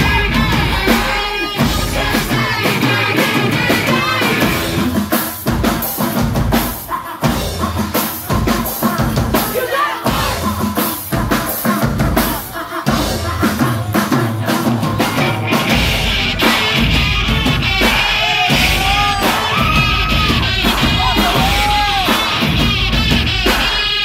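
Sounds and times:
live rock band playing: 0:00.0 - 0:24.0
bass drum and snare hits: 0:14.8 - 0:24.0.

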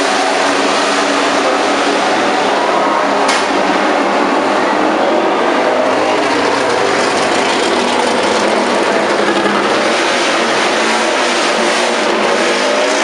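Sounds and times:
racing motorcycle engines revving: 0:00.0 - 0:13.0.

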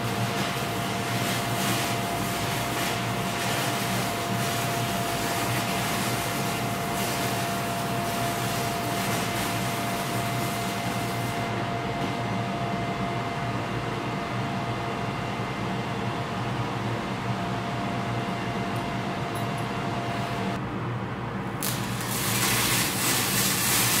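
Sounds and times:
welding arc crackling: 0:00.0 - 0:11.5, 0:21.5 - 0:24.0
exhaust fan humming: 0:00.0 - 0:24.0.

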